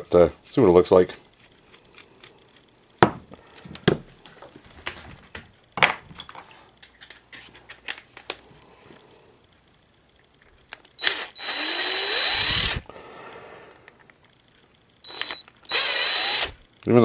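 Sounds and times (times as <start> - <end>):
screwdriver clicking on screws: 10.7 - 12.8, 15.1 - 16.6.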